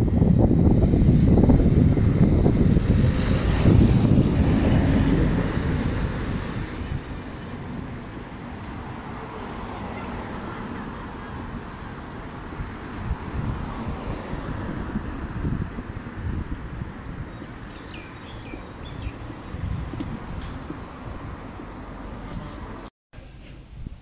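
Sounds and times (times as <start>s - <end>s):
van driving past: 0.0s - 16.4s
street traffic noise: 0.0s - 24.0s.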